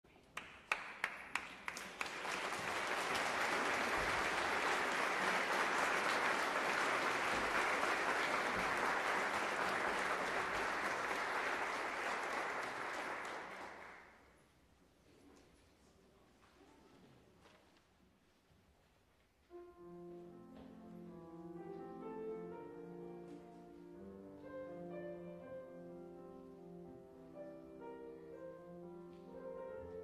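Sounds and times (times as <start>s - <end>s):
audience applauding: 0.4s - 14.2s.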